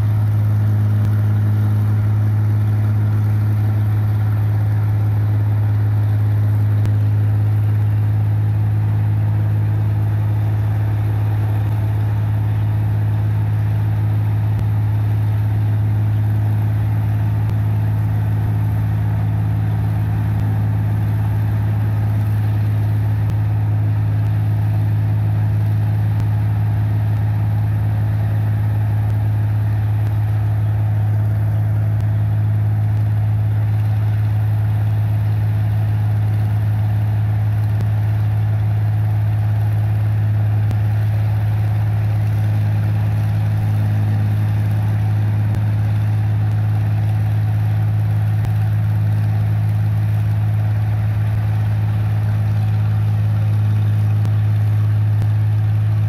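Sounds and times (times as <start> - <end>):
combine harvester humming: 0.0 - 56.0.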